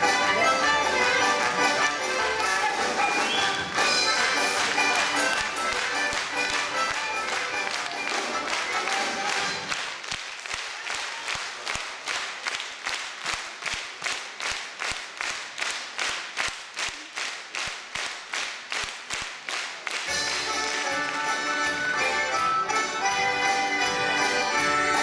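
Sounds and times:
folk band playing: 0.0s - 9.7s, 20.1s - 25.0s.

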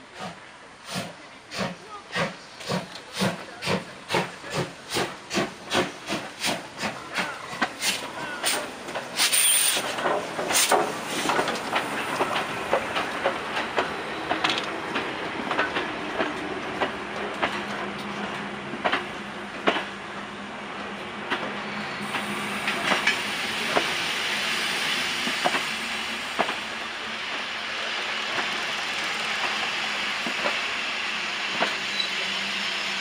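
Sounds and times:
train wheels clicking on rails: 0.1s - 33.0s
steam hissing: 0.2s - 13.3s, 21.6s - 33.0s
steam locomotive exhaust chuffs: 0.2s - 19.0s.

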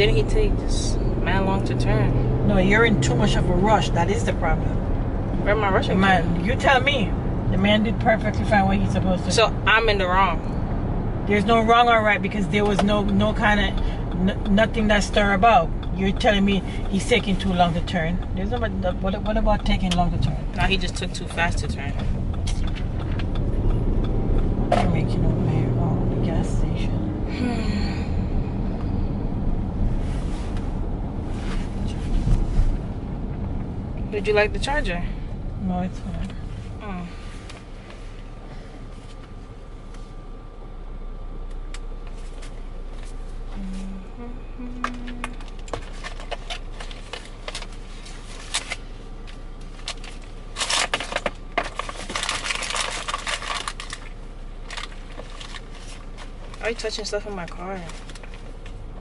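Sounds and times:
car cabin road rumble: 0.0s - 59.0s
steady low hum: 0.0s - 59.0s
crinkly rustling of cable: 49.8s - 56.6s.

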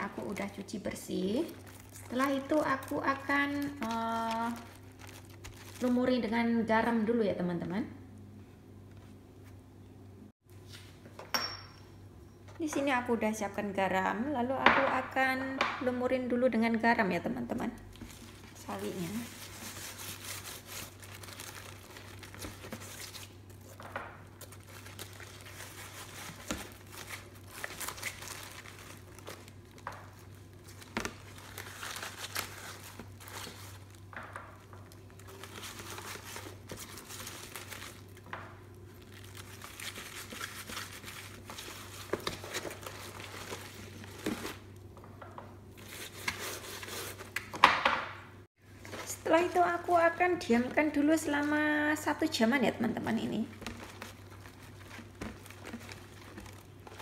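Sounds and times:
cabbage leaves rustling: 1.3s - 6.1s, 18.0s - 23.4s, 24.5s - 34.1s, 35.2s - 38.2s, 39.0s - 44.6s.

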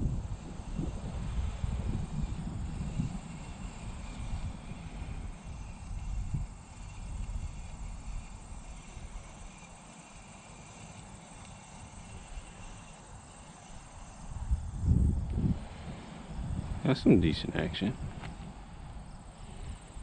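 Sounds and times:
insects chirring: 0.0s - 20.0s
wind rumble on microphone: 0.0s - 20.0s.

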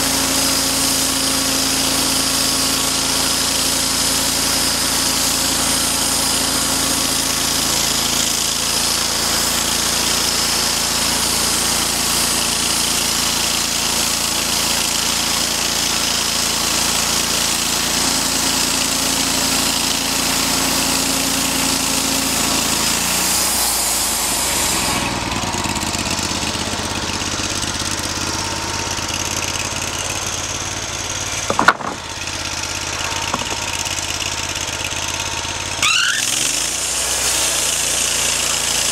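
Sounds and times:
sawmill engine running: 0.0s - 38.9s
band blade cutting wood hiss: 35.8s - 38.9s.

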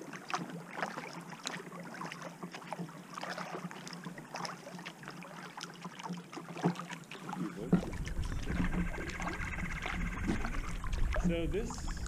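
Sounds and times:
paddle splashing in water: 0.0s - 12.0s
low rumble: 7.6s - 12.0s.

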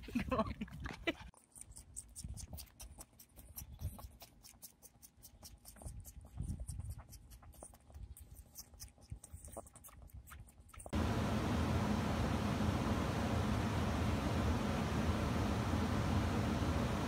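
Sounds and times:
goat sucking on a pacifier: 0.0s - 11.0s.

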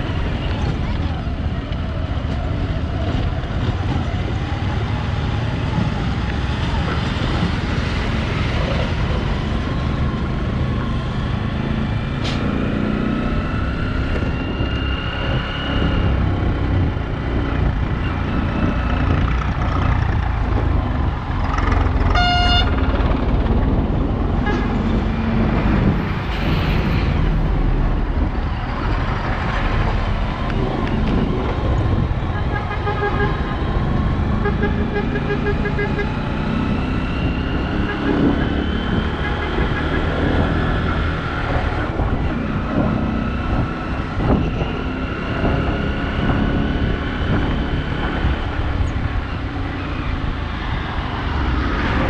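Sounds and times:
road noise: 0.0s - 52.0s
trucks passing: 0.0s - 52.0s
wind on microphone: 12.9s - 35.0s, 36.0s - 52.0s
vehicle horn toot: 22.2s - 22.7s.

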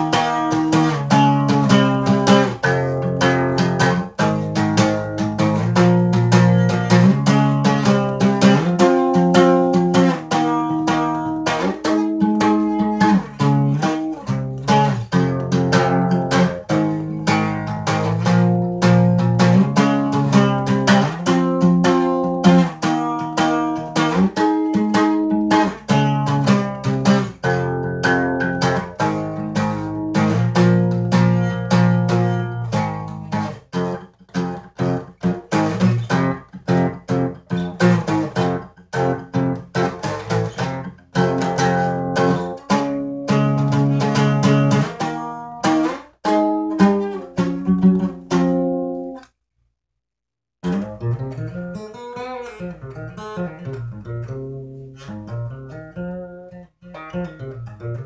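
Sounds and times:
acoustic guitar playing: 0.0s - 49.3s, 50.6s - 58.0s.

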